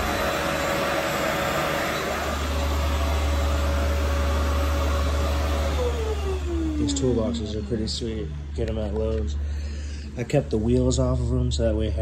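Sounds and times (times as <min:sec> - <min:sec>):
small electric motor whining: 0:00.0 - 0:09.4.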